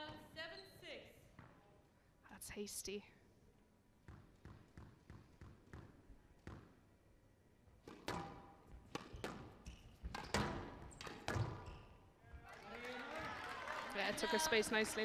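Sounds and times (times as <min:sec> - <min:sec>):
squash ball bouncing on floor: 0:04.0 - 0:06.8, 0:07.8 - 0:12.7
racket striking ball: 0:07.8 - 0:11.7
ball hitting walls: 0:07.8 - 0:11.8.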